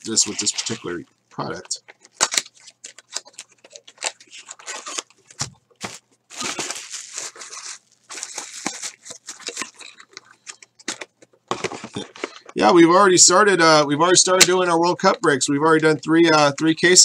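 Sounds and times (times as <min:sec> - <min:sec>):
cellophane crinkling and tearing: 0:00.0 - 0:11.2.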